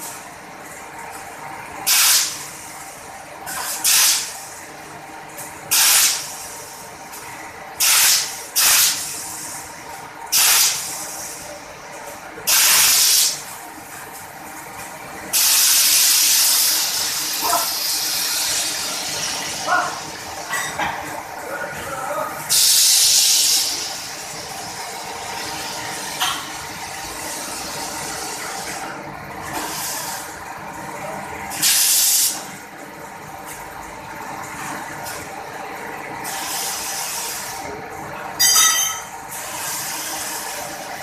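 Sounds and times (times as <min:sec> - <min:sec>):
press venting hissing bursts: 0:01.8 - 0:02.5, 0:03.7 - 0:04.5, 0:05.7 - 0:06.8, 0:07.8 - 0:09.6, 0:10.3 - 0:11.5, 0:12.4 - 0:13.5, 0:15.3 - 0:20.4, 0:22.4 - 0:26.2, 0:29.4 - 0:30.5, 0:31.5 - 0:32.5, 0:36.2 - 0:37.6.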